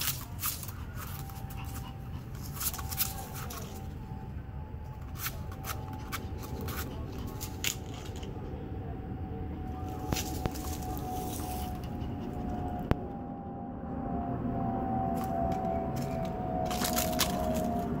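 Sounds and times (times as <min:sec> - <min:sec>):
dog paws scratching in leaves: 0:00.0 - 0:04.0, 0:09.9 - 0:11.9, 0:16.7 - 0:17.9
steady low rumble: 0:00.0 - 0:18.0.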